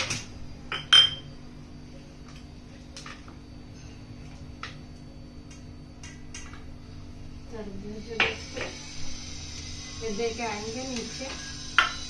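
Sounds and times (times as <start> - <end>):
dishes clinking: 0.0 - 1.3.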